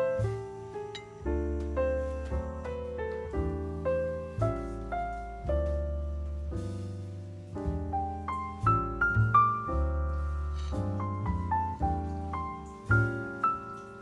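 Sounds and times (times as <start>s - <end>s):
piano music: 0.0s - 14.0s.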